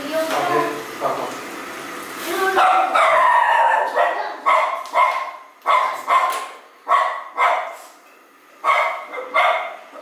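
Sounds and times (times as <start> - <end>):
dog barking: 2.6 - 7.9, 8.6 - 9.8.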